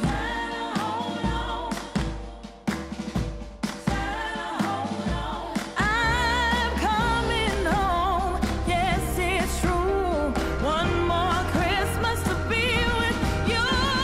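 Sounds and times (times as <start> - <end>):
pop song with singing: 0.0 - 14.0
steady bass line: 5.1 - 14.0.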